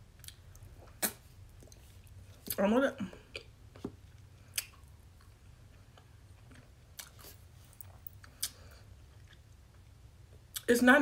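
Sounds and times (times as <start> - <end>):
faint low hum: 0.0 - 11.0
mouth clicks and smacks: 0.2 - 1.8, 4.5 - 4.9.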